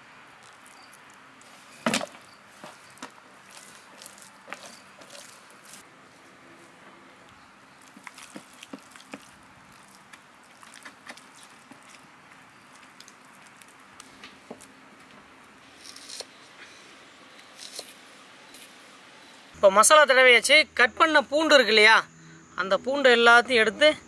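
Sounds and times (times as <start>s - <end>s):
hands squelching paste into fish: 2.6s - 5.8s, 7.8s - 14.2s.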